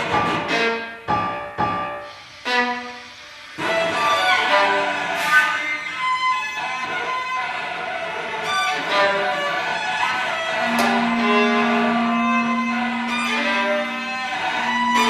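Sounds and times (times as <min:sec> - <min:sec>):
bowed strings: 0:02.5 - 0:15.0
chamber music ensemble: 0:03.5 - 0:15.0.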